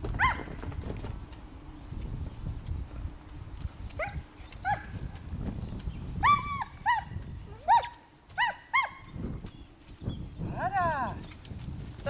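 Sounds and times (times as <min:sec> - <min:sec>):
dog barking in high yaps: 0:06.2 - 0:09.0.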